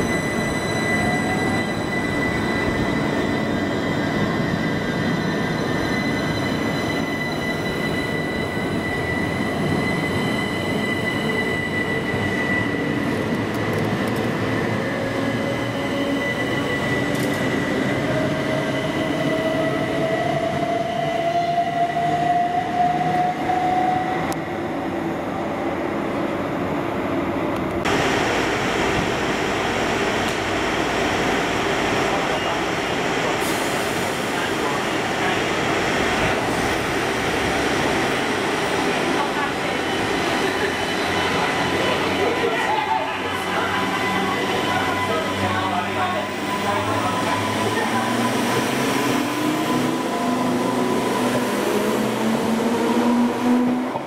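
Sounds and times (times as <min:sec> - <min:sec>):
high steady squealing tone: 0:00.0 - 0:13.2.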